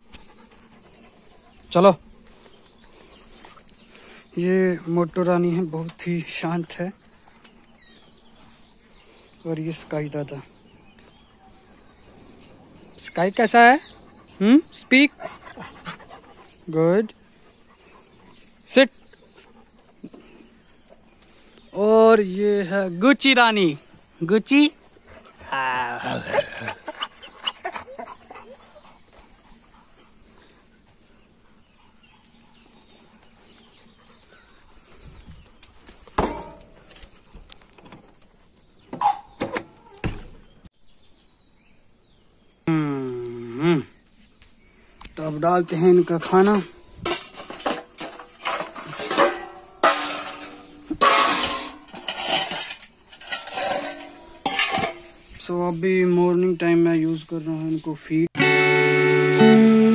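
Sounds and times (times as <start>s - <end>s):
metal bowls clanking: 46.2s - 55.2s.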